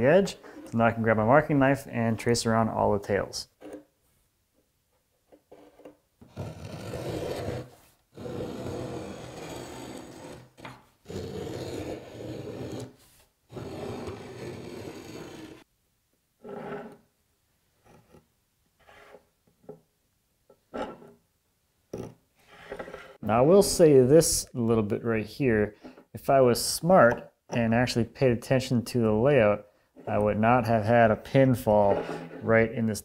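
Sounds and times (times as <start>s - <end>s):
marking gauge scribing wood: 6.4s - 12.9s, 13.5s - 15.6s.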